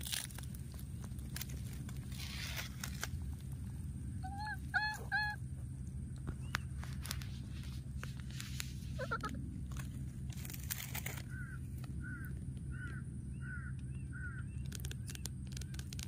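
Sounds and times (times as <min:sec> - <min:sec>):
low hum: 0:00.0 - 0:16.0
baby monkey crying: 0:04.1 - 0:05.5, 0:08.9 - 0:09.5
rustling clicks: 0:06.4 - 0:12.0, 0:14.6 - 0:16.0.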